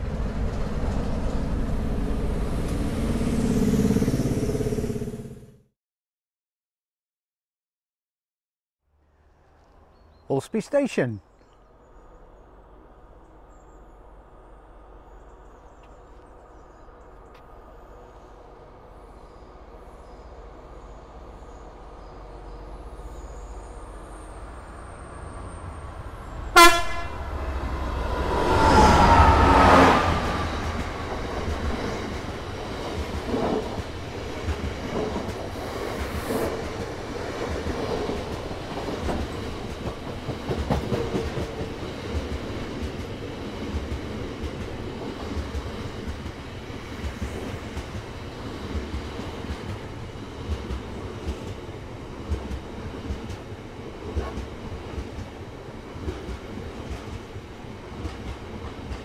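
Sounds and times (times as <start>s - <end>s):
locomotive passing: 0.0s - 5.5s, 12.0s - 59.0s
train horn blast: 26.5s - 30.4s
wagons rumbling past: 27.1s - 35.1s.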